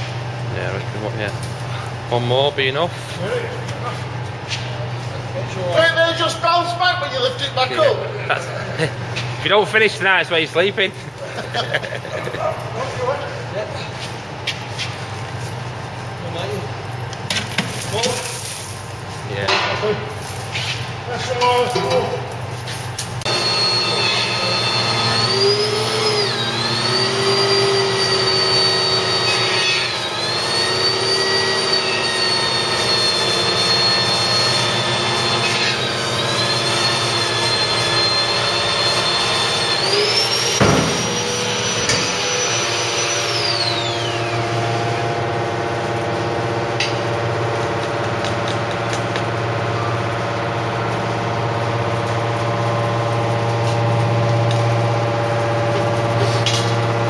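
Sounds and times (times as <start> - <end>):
baler motor and pump hum: 0.0 - 57.0
high machine whine: 0.0 - 57.0
sharp knock: 40.6 - 41.2.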